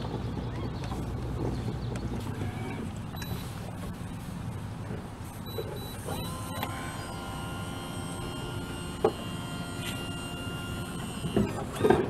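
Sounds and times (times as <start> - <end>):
motor whining: 2.2 - 4.0, 5.2 - 12.0.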